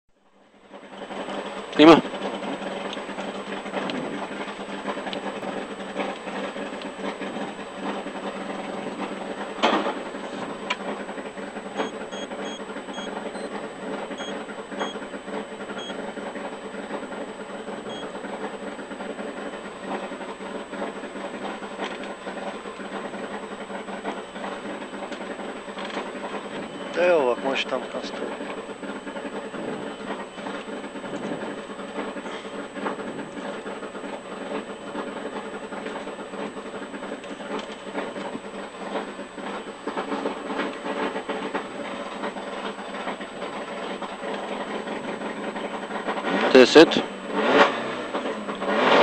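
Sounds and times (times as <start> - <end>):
car engine idling: 0.1 - 49.0
faint short beeps: 11.8 - 13.6.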